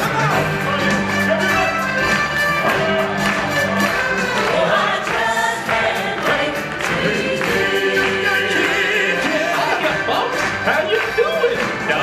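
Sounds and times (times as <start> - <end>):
choir singing: 3.9 - 10.1.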